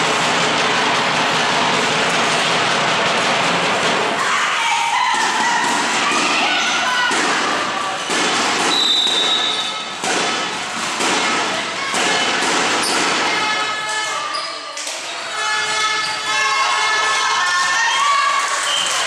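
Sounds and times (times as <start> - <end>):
girls shouting: 4.2 - 8.1, 15.3 - 18.7
high whistle note: 8.7 - 9.8.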